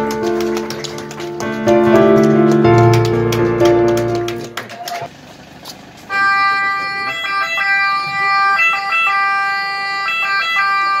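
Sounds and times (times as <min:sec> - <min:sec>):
ambulance siren: 0:06.1 - 0:11.0.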